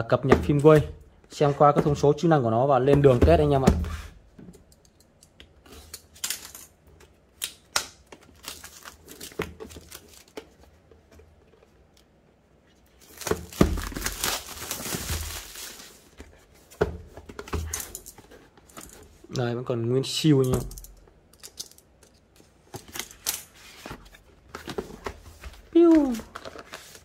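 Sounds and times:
plastic wrap crinkling: 12.9s - 16.2s
plastic wrap tearing: 13.0s - 16.0s.

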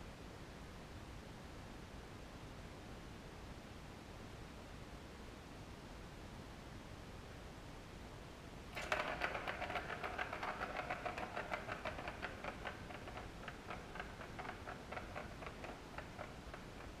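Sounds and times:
ball rattling around plastic track: 8.7s - 17.0s.

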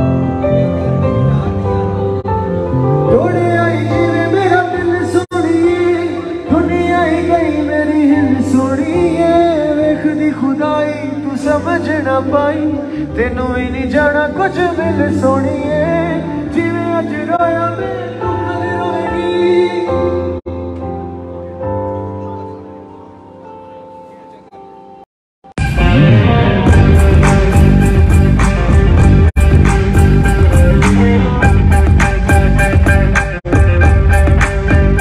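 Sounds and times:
bass: 0.0s - 22.2s, 25.5s - 35.0s
keyboard chords: 0.0s - 35.0s
man singing: 3.0s - 20.7s
drums: 25.6s - 35.0s.

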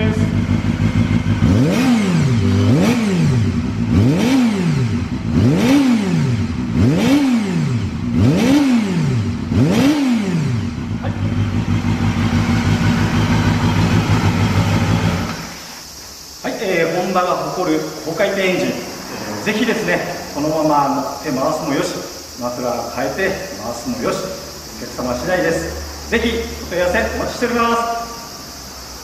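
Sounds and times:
motorcycle engine idling: 0.0s - 16.4s
motorcycle engine revving: 0.0s - 29.0s.

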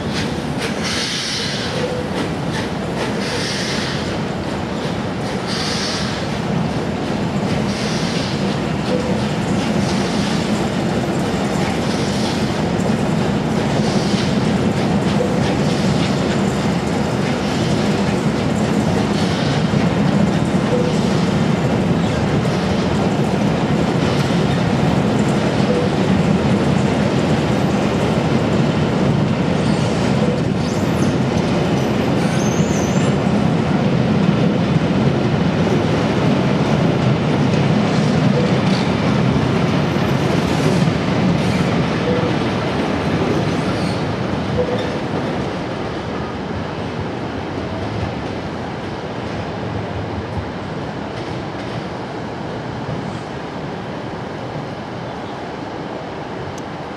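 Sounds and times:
steel wheels rumbling on rail: 0.0s - 56.9s
high wheel squeal: 32.3s - 33.1s.

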